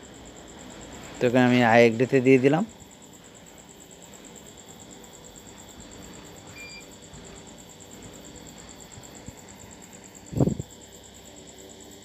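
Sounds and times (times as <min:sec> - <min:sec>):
faint beep: 0:06.5 - 0:06.9.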